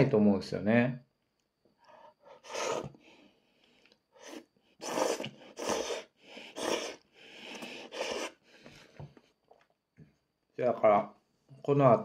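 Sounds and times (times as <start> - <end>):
hissing noodle slurps: 2.3 - 3.0, 4.2 - 8.5.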